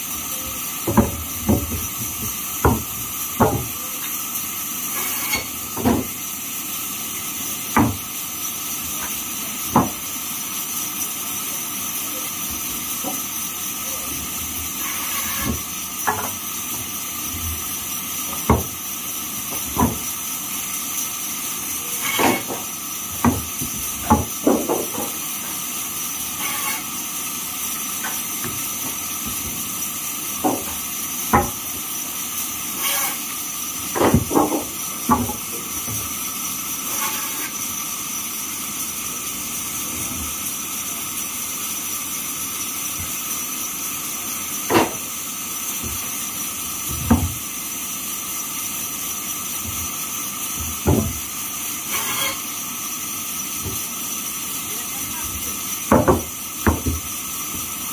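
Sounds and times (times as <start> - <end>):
wooden planks knocking: 2.6 - 3.7, 19.5 - 20.0, 23.2 - 25.2, 30.4 - 31.6, 33.9 - 36.0, 50.6 - 51.2, 55.9 - 57.0.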